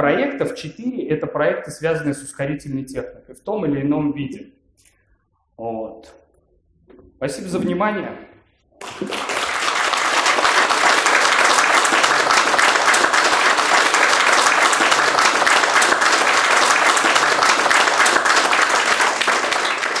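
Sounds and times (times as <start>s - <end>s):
audience applauding: 8.8s - 20.0s.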